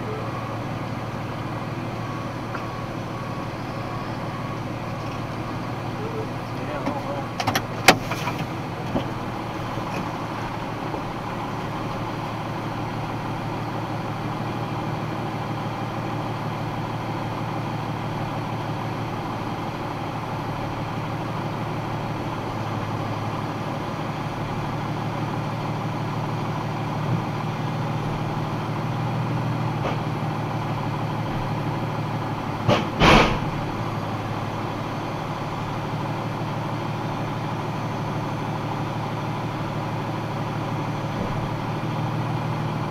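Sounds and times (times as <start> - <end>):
truck engine idling: 0.0 - 42.9.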